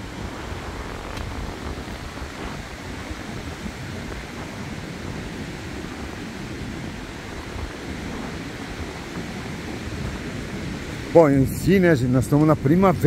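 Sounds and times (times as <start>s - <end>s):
surf breaking on beach: 0.0s - 13.0s
wind rumble on microphone: 0.0s - 13.0s.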